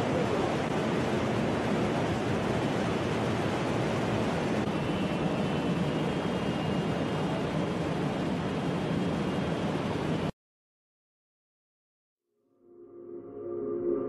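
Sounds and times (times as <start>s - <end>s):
floodwater rushing: 0.0s - 9.8s.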